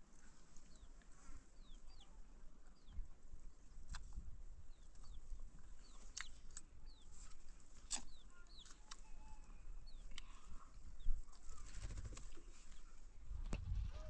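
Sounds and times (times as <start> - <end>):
chickens chirping: 4.7 - 13.1.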